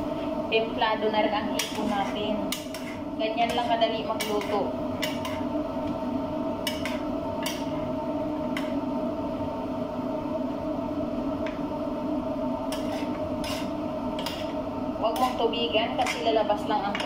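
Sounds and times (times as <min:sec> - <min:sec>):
steady low hum: 0:00.0 - 0:17.0
utensils stirring food in a wok: 0:00.8 - 0:08.9, 0:12.4 - 0:17.0
utensil clicking against pan: 0:02.5 - 0:03.6, 0:04.2 - 0:05.4, 0:06.6 - 0:07.7.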